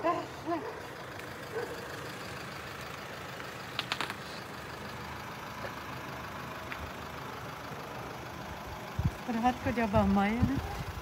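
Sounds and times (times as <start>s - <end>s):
car engine rumbling: 0.0s - 11.0s
sharp clicks: 3.6s - 4.3s.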